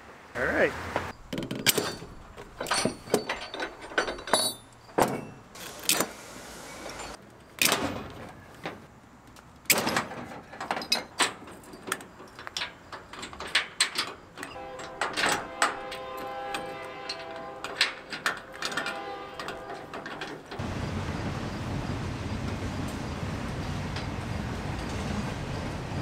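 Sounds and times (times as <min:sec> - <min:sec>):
webbing pulled through buckles: 0:01.1 - 0:06.1.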